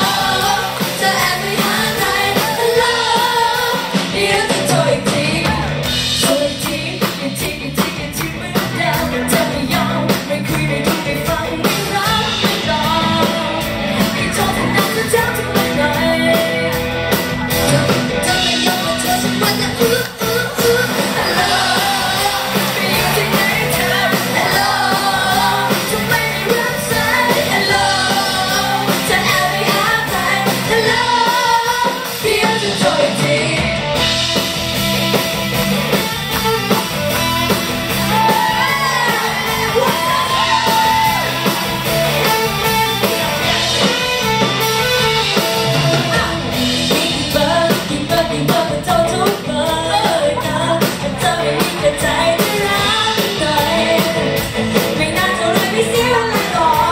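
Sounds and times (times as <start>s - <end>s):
women singing into microphones: 0.0s - 16.6s, 18.3s - 33.8s, 38.0s - 41.3s, 46.1s - 56.9s
amplified pop music: 0.0s - 56.9s.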